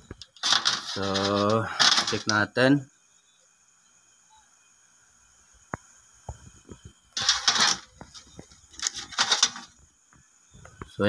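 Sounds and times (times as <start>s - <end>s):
rustling clatter of circuit board: 0.0s - 2.4s, 7.2s - 9.8s.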